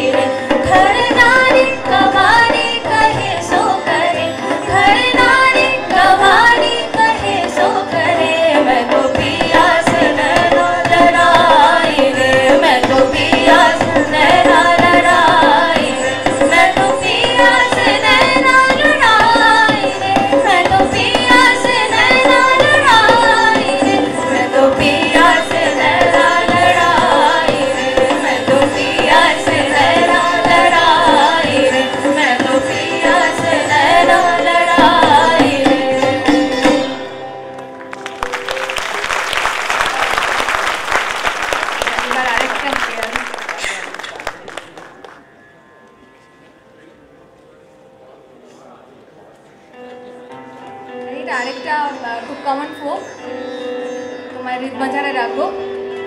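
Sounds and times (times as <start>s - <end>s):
women singing into microphones: 0.0s - 37.1s
tabla: 0.0s - 46.0s
audience applauding: 37.5s - 45.3s.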